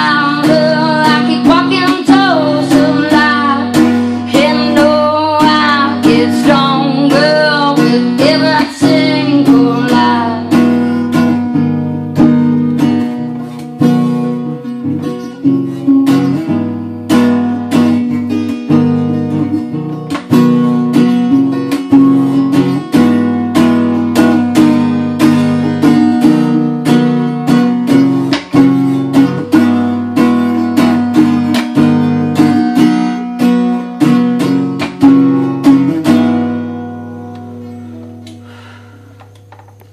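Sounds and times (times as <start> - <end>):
woman singing: 0.0 - 10.9
acoustic guitar strumming: 0.0 - 39.9.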